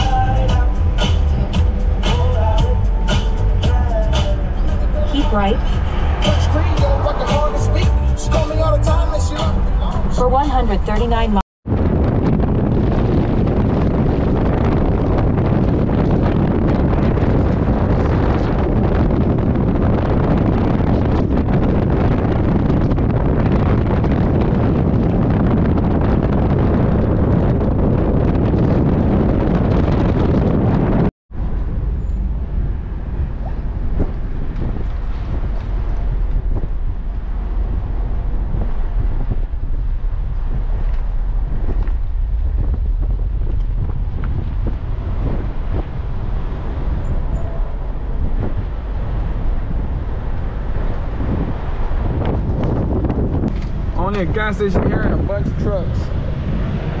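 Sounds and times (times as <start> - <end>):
tyre and road noise: 0.0 - 57.0
wind buffeting microphone: 0.0 - 57.0
car rolling slowly: 31.4 - 57.0.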